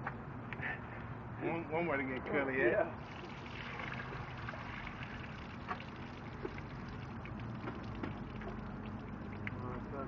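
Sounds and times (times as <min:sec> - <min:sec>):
steady low hum: 0:02.8 - 0:10.0.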